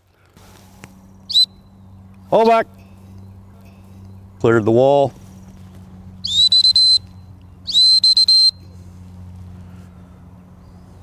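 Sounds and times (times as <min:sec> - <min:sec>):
shrill whistle blasts: 0:01.3 - 0:01.7, 0:06.2 - 0:08.7.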